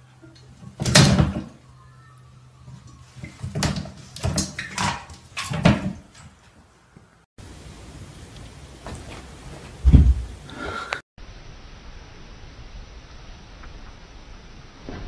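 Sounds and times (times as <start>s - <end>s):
knocks and bumps: 8.8s - 10.4s.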